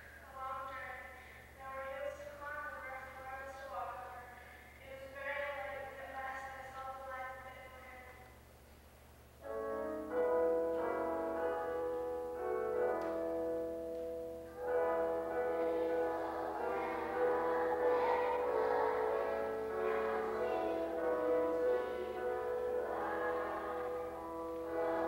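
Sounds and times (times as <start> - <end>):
keyboard music with held chords: 9.4 - 25.0.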